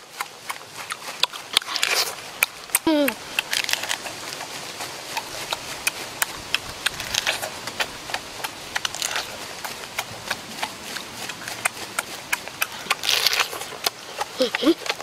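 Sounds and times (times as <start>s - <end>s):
chewing: 0.0s - 15.0s
crab shell cracking: 1.6s - 4.0s, 8.8s - 9.4s, 12.6s - 14.0s.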